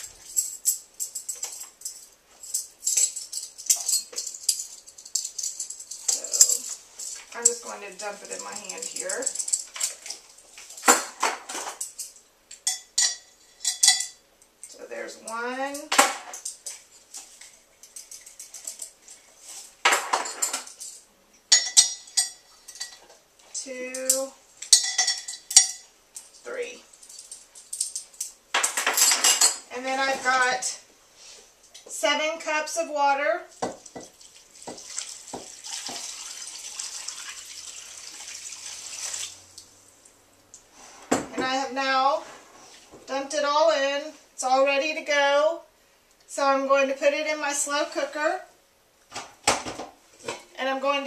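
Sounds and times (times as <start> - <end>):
metal spoon clinking on container: 0.0 - 7.6, 11.8 - 14.2, 20.3 - 23.0, 24.6 - 25.9.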